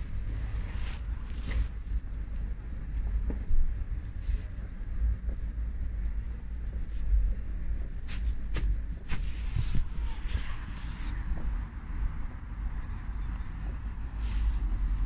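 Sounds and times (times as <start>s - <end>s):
car interior rumble: 5.1s - 15.0s.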